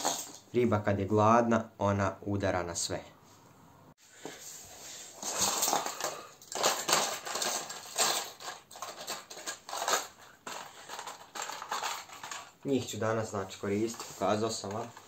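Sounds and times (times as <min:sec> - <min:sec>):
plastic bag crinkling: 0:00.0 - 0:00.4, 0:05.1 - 0:15.0
small hard objects clattering: 0:00.0 - 0:00.5, 0:05.1 - 0:15.0.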